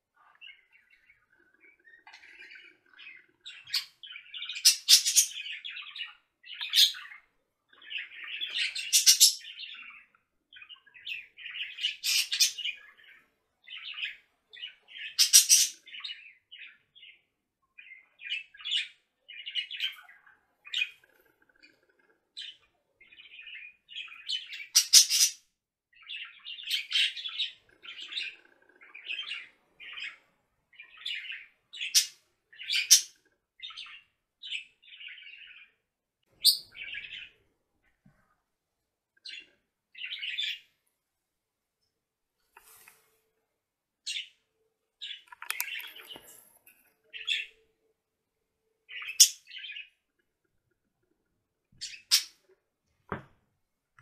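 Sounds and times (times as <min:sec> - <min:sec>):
budgerigar chirps and twitters: 0:00.2 - 0:37.4, 0:39.2 - 0:40.7, 0:48.8 - 0:50.0, 0:51.8 - 0:52.6.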